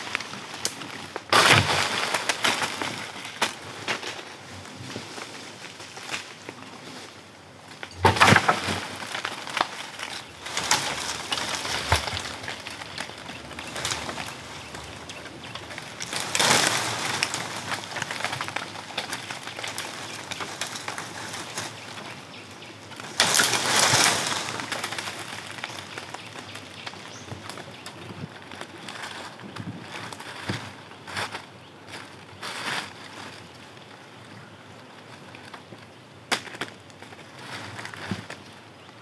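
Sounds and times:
vines and branches rustling: 0:00.0 - 0:39.0
birds calling: 0:09.0 - 0:29.7.

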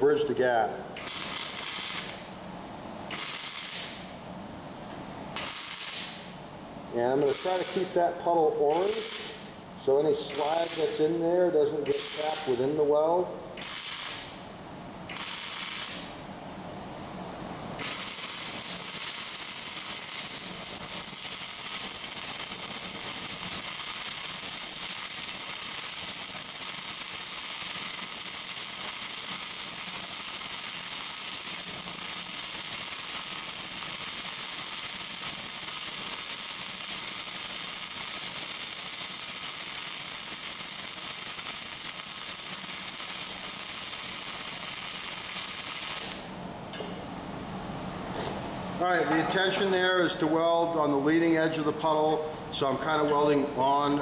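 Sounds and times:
arc welding hiss: 0:01.0 - 0:02.2, 0:03.1 - 0:04.0, 0:05.4 - 0:13.0, 0:13.6 - 0:14.4, 0:15.1 - 0:16.1, 0:17.8 - 0:46.3.

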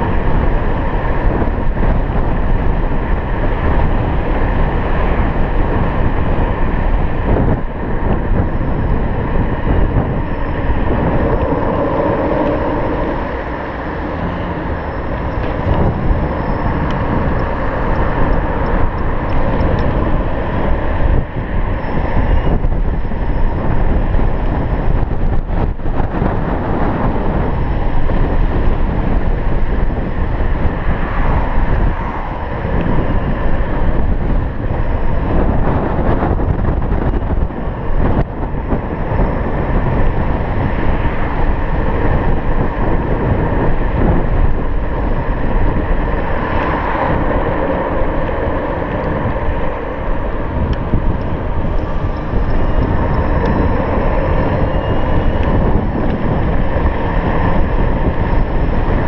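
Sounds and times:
tyre and road noise: 0:00.0 - 0:59.0
wind buffeting microphone: 0:00.0 - 0:59.0.

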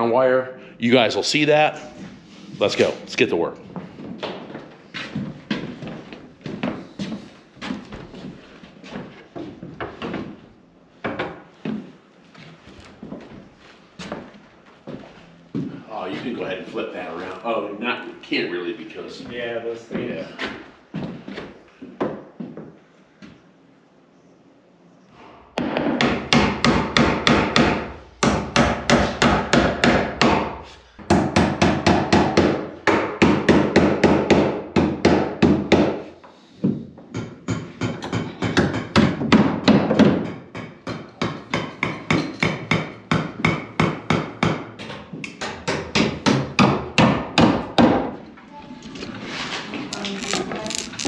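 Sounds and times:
hammer striking wood: 0:25.6 - 0:36.0, 0:37.1 - 0:48.2.

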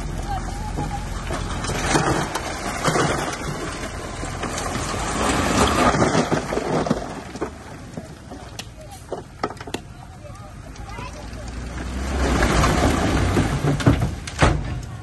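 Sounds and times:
bulldozer engine hum: 0:00.0 - 0:15.0
dirt and stone being pushed: 0:00.0 - 0:15.0.

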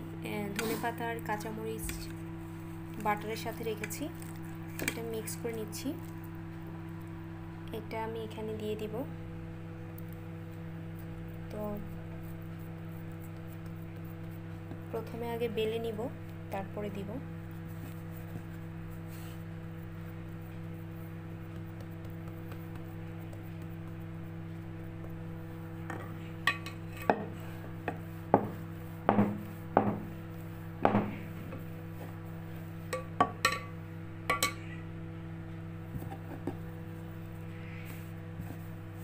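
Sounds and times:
steady low hum: 0:00.0 - 0:39.0
rolling pin knocking on wooden board: 0:27.9 - 0:30.2, 0:30.8 - 0:31.6.

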